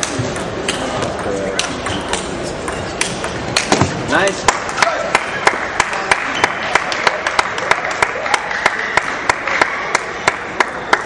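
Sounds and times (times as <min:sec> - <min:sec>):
crowd noise in a hall: 0:00.0 - 0:11.0
rhythmic clapping: 0:04.5 - 0:11.0.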